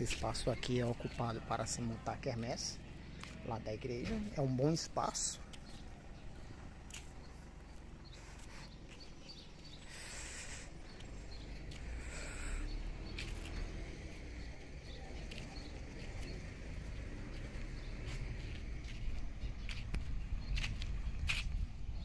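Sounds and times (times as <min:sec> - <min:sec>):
short hissing sounds: 0:09.8 - 0:10.8.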